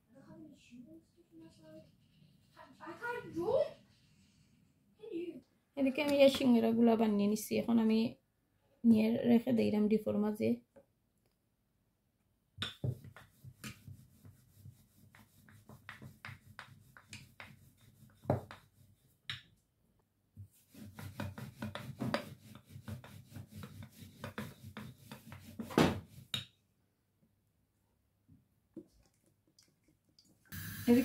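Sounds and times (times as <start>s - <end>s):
rolling pin rolling dough: 12.6s - 19.5s, 20.4s - 26.5s.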